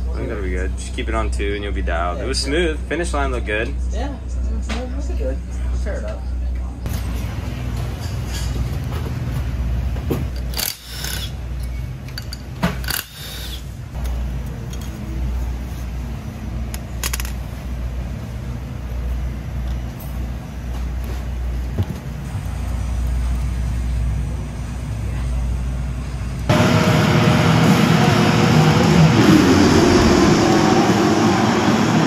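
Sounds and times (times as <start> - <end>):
metal tools clinking: 10.3 - 13.2, 14.0 - 15.1, 16.7 - 17.4
steady low rumble: 13.7 - 32.0.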